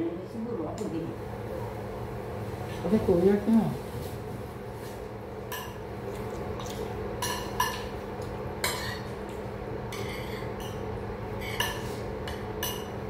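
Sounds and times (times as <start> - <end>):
steady low hum: 0.0 - 13.0
spoons clinking on plates: 10.0 - 13.0.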